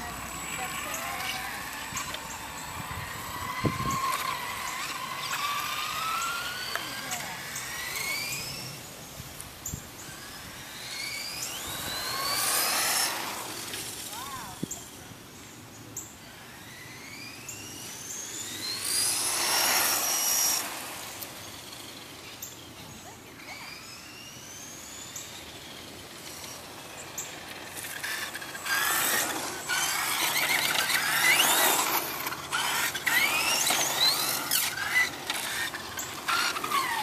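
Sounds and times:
toy truck motor whining: 0.0s - 15.0s, 16.2s - 37.0s
tyres hissing on pavement: 4.0s - 14.8s, 18.0s - 23.6s, 24.6s - 37.0s.

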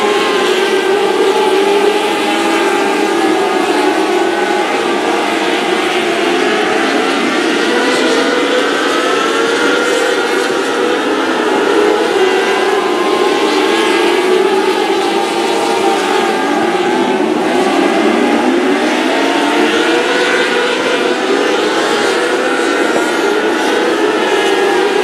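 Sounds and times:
race car engines: 0.0s - 25.0s.

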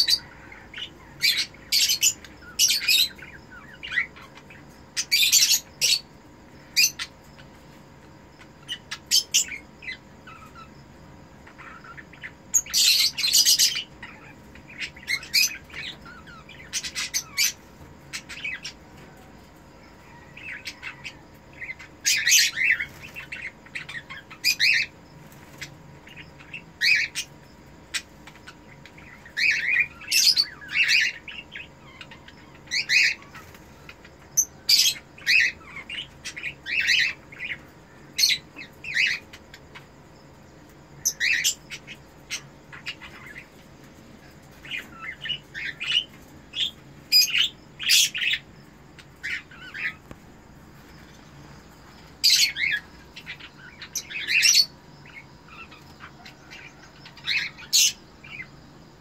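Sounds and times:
cockatiels chirping and squawking: 12.6s - 18.8s.

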